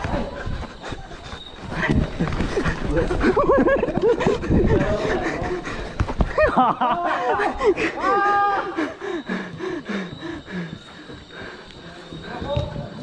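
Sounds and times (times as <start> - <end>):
people shouting and whooping: 6.3 - 9.6.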